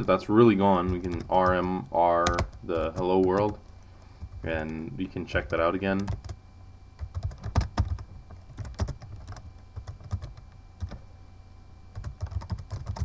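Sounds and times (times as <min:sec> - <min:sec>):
typing on computer keyboard: 0:00.9 - 0:03.6, 0:06.0 - 0:06.4, 0:07.0 - 0:11.0, 0:11.9 - 0:13.0.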